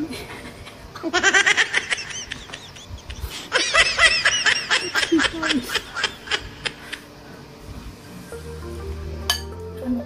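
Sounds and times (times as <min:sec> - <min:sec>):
high-pitched giggling: 0:00.3 - 0:07.0.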